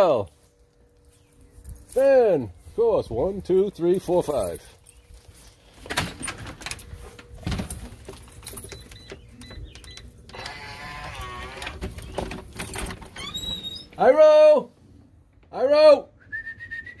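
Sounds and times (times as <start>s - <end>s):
lock and handle clicks and rattles: 5.9s - 10.6s
door squealing: 9.0s - 14.2s.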